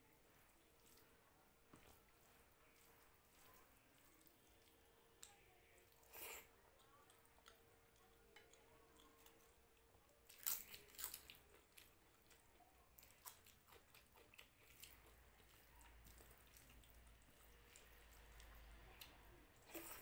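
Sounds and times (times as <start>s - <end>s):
hand squishing rice: 0.0s - 4.8s.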